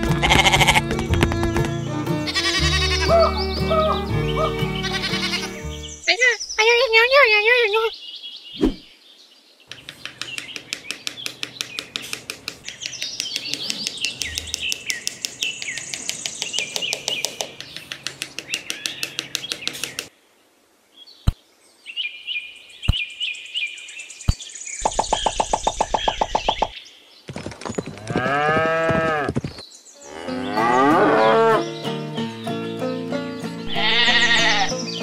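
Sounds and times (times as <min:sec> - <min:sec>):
birds chirping and trilling: 0:01.8 - 0:35.0
sharp clicks: 0:09.7 - 0:20.1.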